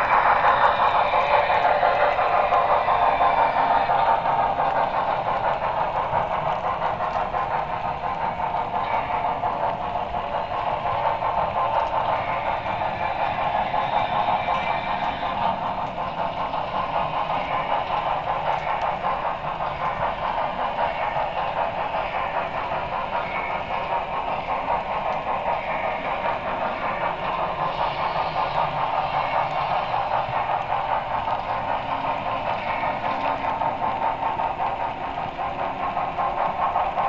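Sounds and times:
model train running on track: 0.0 - 37.0.

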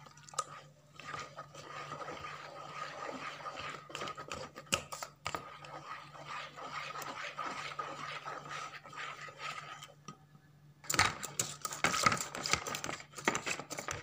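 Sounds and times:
whisk beating batter in bowl: 0.0 - 10.0, 10.9 - 14.0.

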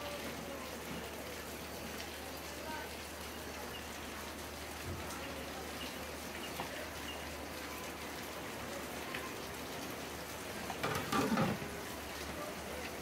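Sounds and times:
water dripping and splashing: 0.0 - 13.0
wet clatter: 10.7 - 11.6.

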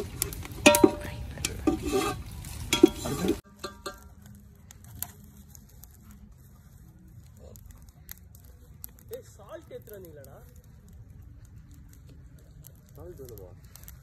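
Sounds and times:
clicks and knocks against pot: 0.0 - 4.2
spices sizzling in hot oil: 0.0 - 6.0.

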